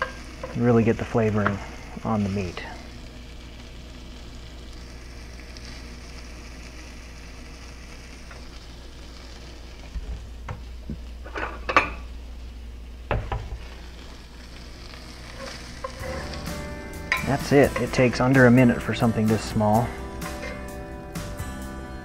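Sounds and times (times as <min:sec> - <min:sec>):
meat sizzling in a skillet: 0:00.0 - 0:22.0
metal spatula scraping a pan: 0:15.2 - 0:18.0, 0:20.2 - 0:20.7.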